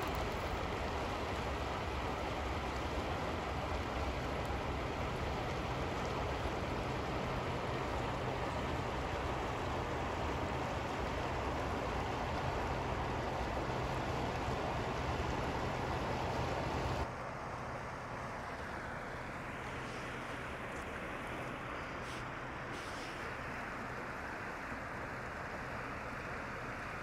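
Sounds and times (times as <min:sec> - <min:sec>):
river flowing over rocks: 0:00.0 - 0:17.1.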